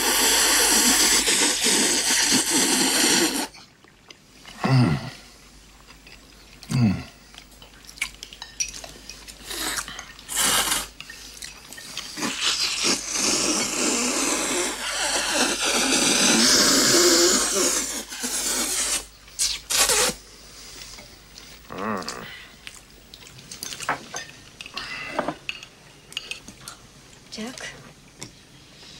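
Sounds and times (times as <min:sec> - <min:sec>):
noodles being slurped: 0:00.0 - 0:03.7, 0:07.8 - 0:20.2.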